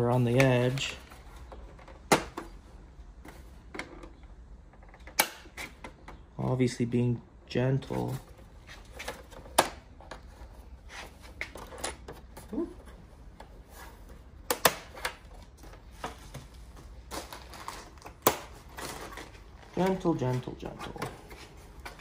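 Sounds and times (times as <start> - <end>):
plastic scraping and handling: 7.9 - 22.0.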